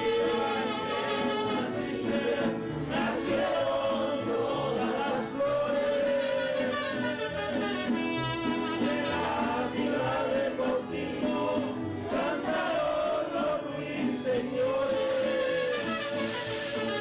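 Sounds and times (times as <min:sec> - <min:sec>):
voices singing a chant: 0:00.0 - 0:07.1, 0:08.7 - 0:16.0.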